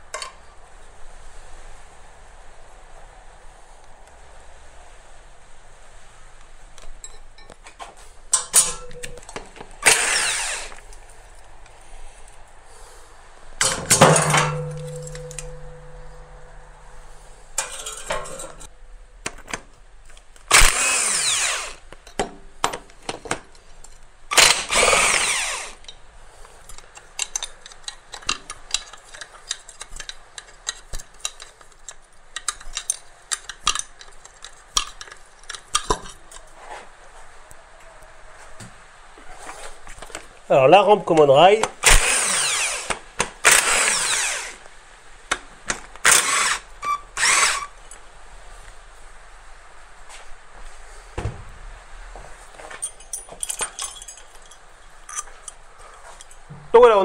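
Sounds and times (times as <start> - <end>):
low hum: 8.5 - 21.7
power wrench spinning: 9.8 - 10.8, 20.5 - 21.9, 24.3 - 25.9, 41.8 - 44.7, 46.0 - 47.8
metallic clicks and knocks: 13.6 - 16.6.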